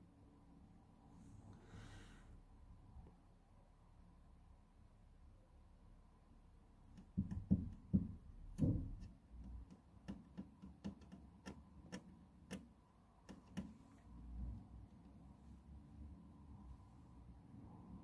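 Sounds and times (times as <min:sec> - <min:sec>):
sharp knocks: 0:07.0 - 0:12.7.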